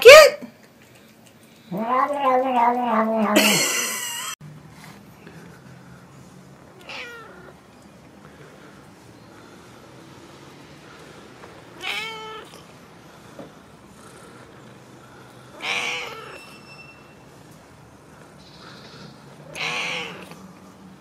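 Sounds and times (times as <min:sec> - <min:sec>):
cat meowing: 0:01.7 - 0:03.7, 0:06.8 - 0:07.6, 0:11.8 - 0:12.6, 0:15.6 - 0:16.5, 0:18.8 - 0:20.4.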